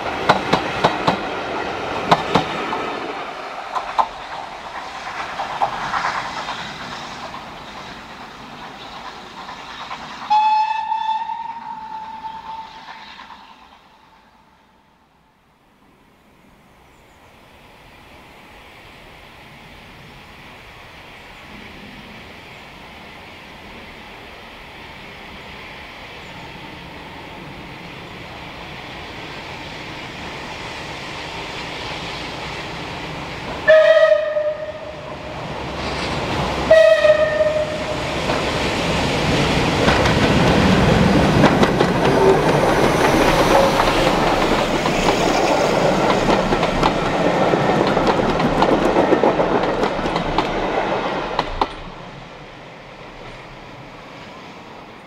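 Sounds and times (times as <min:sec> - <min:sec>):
wheel and rail clatter: 0:00.0 - 0:10.3, 0:37.9 - 0:52.1
steam locomotive whistle blasts: 0:10.3 - 0:13.0, 0:33.6 - 0:35.1, 0:36.7 - 0:38.1.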